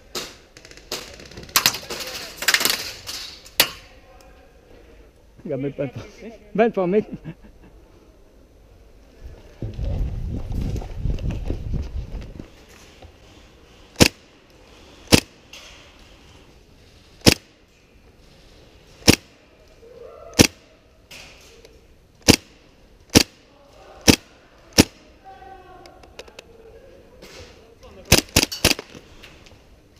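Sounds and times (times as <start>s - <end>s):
airsoft gun shots: 14.0s - 14.2s, 15.1s - 15.3s, 17.2s - 17.5s, 19.0s - 19.4s, 20.4s - 20.7s, 22.2s - 22.5s, 23.1s - 23.4s, 24.0s - 25.0s, 28.1s - 28.8s.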